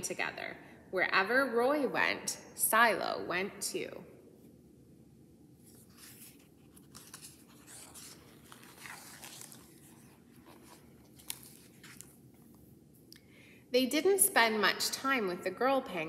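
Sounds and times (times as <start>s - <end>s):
paper rustling and crinkling: 5.6s - 12.6s.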